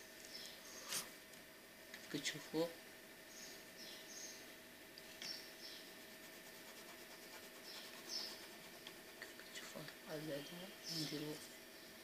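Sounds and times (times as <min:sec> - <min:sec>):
low steady hum: 0:00.0 - 0:12.0
pen scratching on paper: 0:06.0 - 0:09.4.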